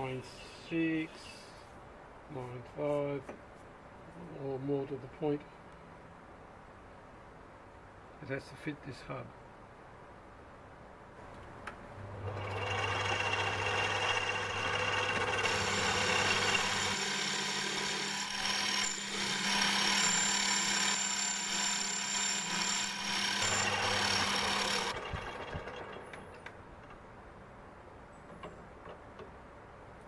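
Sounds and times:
lathe motor hum: 12.1 - 26.2
lathe cutting metal with whine: 12.2 - 26.0.

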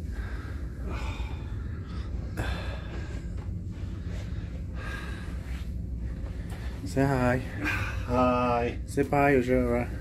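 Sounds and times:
breathy exhalations: 0.0 - 6.8
steady low hum: 0.0 - 10.0.

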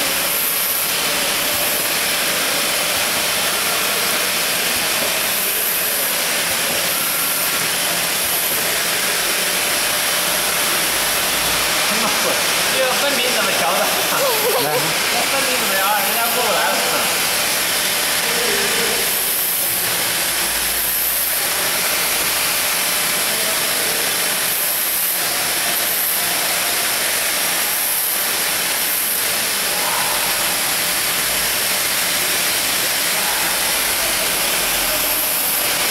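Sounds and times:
labeling machine hissing: 0.0 - 35.9.

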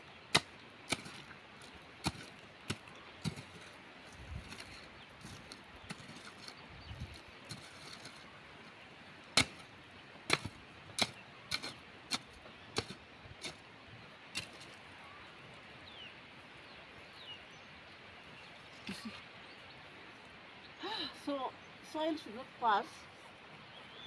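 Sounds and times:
hoe striking stony soil: 0.3 - 8.2, 9.4 - 9.7, 10.3 - 13.6, 14.3 - 14.8.

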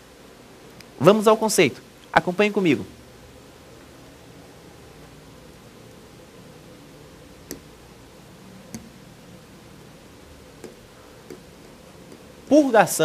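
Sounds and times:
low room hum: 0.0 - 13.0
mouse clicks: 7.5 - 7.7.

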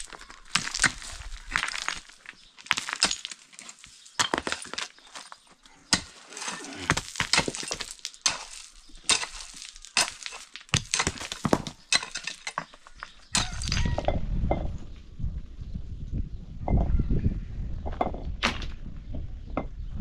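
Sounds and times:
digging tool striking stony ground: 0.0 - 5.3, 5.9 - 14.2
rocks clinking together: 0.0 - 14.6
low rumbling noise: 13.4 - 20.0.

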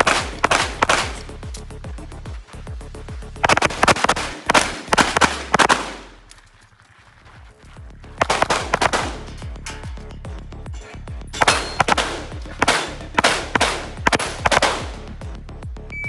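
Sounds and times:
rapid pistol shots: 0.0 - 1.6, 3.4 - 6.2, 8.2 - 9.4, 11.4 - 15.2
background music with steady beat: 0.0 - 16.0.

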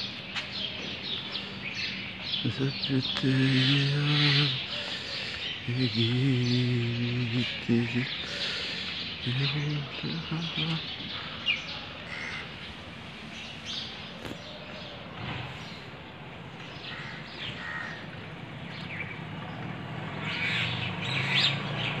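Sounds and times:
birds chirping: 0.0 - 22.0
harsh crow-like calls: 11.1 - 12.7, 16.8 - 18.2, 20.2 - 21.6.

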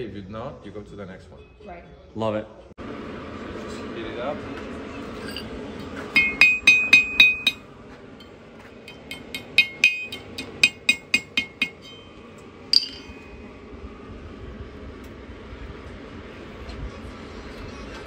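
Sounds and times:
hammer striking anvil: 6.1 - 7.6, 8.8 - 13.4.

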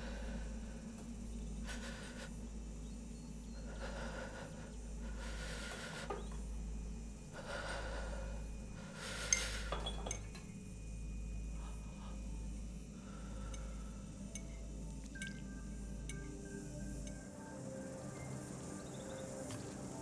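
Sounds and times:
woman breathing heavily: 0.0 - 6.5, 7.2 - 9.8, 11.5 - 14.3
low steady hum: 0.0 - 20.0.

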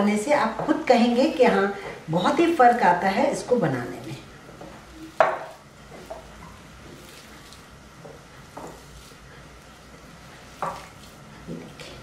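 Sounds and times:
hands squishing moist mixture: 6.0 - 12.0.

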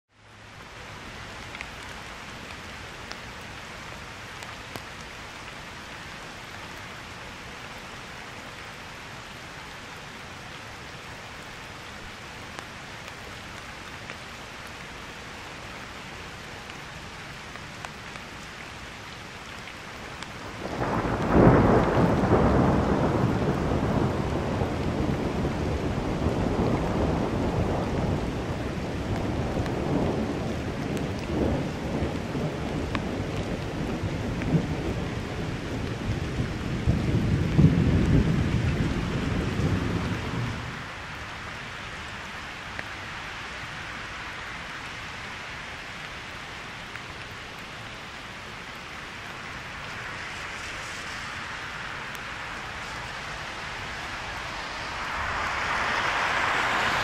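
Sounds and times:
steady rain falling: 0.1 - 57.0
thunderclap and rumble: 20.4 - 41.0, 49.8 - 57.0.

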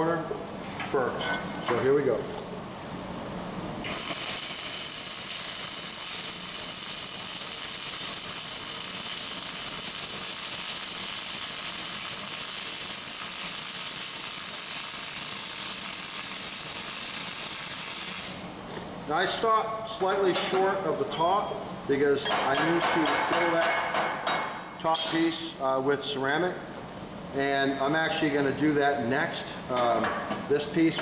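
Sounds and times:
arc welder hissing: 3.8 - 19.2.

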